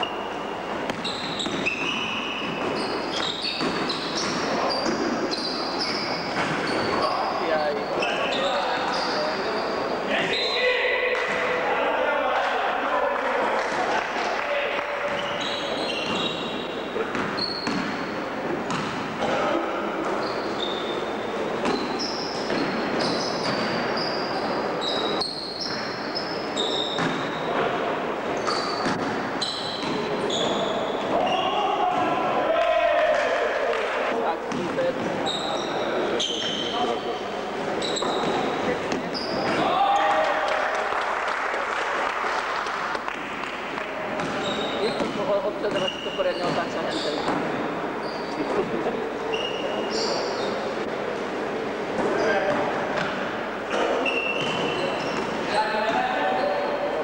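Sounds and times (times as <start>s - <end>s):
shoes squealing on court floor: 0.0s - 11.6s, 15.0s - 32.2s, 34.0s - 40.4s, 43.4s - 50.8s, 52.0s - 56.9s
basketball bouncing: 18.7s - 19.1s, 44.2s - 46.6s.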